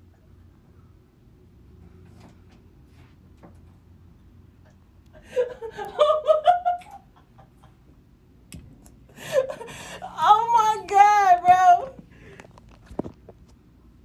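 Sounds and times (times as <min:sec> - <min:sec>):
woman laughing hard: 0:05.2 - 0:07.8, 0:09.2 - 0:10.2.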